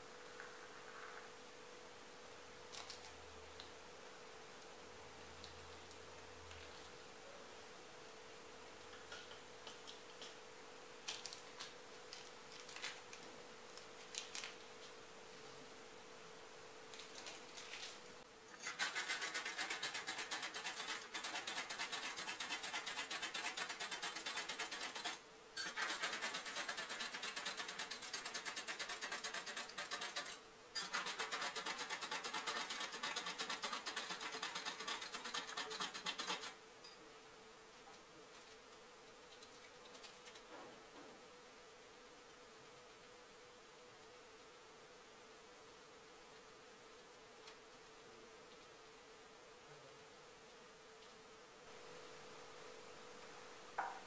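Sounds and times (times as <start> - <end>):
electric milk frother buzzing: 18.6 - 36.6.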